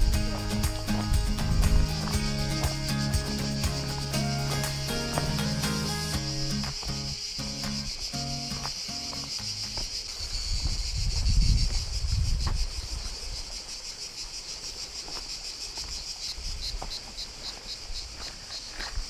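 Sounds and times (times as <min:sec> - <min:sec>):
wind rumble on microphone: 0:00.0 - 0:02.4, 0:10.2 - 0:13.4
cicadas buzzing: 0:00.0 - 0:19.0.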